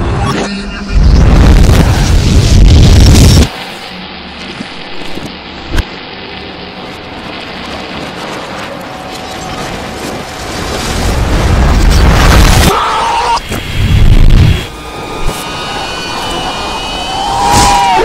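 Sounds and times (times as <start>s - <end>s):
steady low rumble: 0.0s - 12.7s
reversed explosion rumble: 0.8s - 3.5s.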